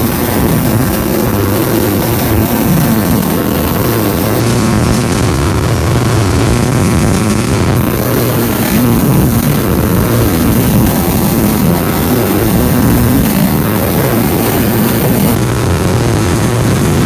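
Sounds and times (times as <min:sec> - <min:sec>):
steady low hum: 0:00.0 - 0:17.0
welding arc crackling: 0:00.0 - 0:17.0.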